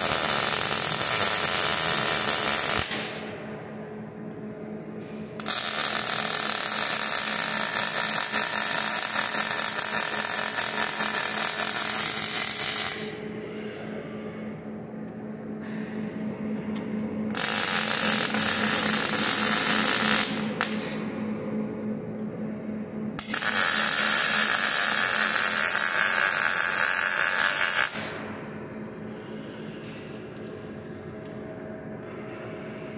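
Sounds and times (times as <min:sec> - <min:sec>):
welding arc crackling and sizzling: 0:00.0 - 0:03.2, 0:05.4 - 0:13.2, 0:17.3 - 0:20.9, 0:23.2 - 0:28.2
steady low hum: 0:00.0 - 0:32.9.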